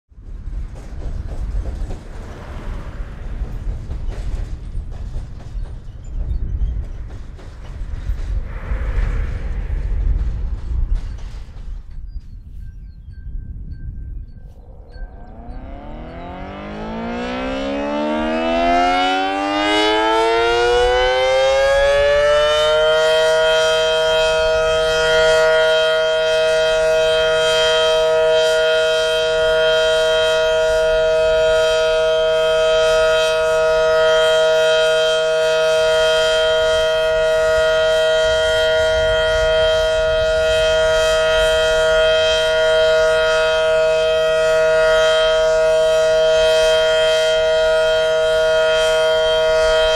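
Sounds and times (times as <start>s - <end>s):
warning siren winding up: 14.3s - 49.9s.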